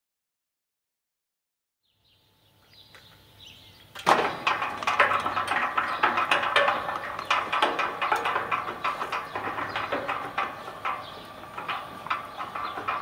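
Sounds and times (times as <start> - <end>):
sliding gate rattling on track: 4.0 - 13.0.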